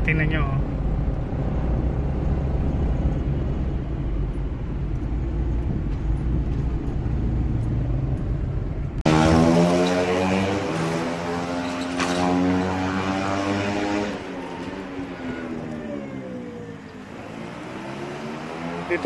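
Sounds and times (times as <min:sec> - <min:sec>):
engine and road rumble in cabin: 0:00.0 - 0:19.0
loud high-pitched engine: 0:09.1 - 0:19.0.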